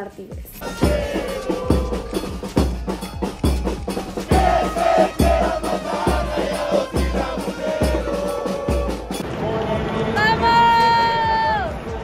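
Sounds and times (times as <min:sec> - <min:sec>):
sharp percussion hits: 0:00.3 - 0:09.3
heavy kick drum: 0:00.4 - 0:09.2
held melody: 0:00.6 - 0:09.2.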